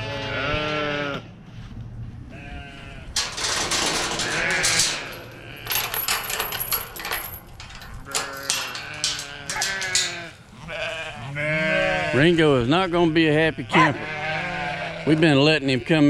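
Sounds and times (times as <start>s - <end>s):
sheep and goats bleating: 0.0s - 1.3s, 2.3s - 6.2s, 7.7s - 16.0s
sharp clicks and rattles: 3.2s - 10.5s.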